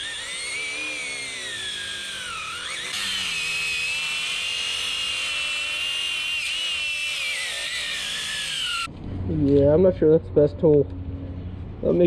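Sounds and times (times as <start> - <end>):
angle grinder cutting rubber: 0.0 - 8.9.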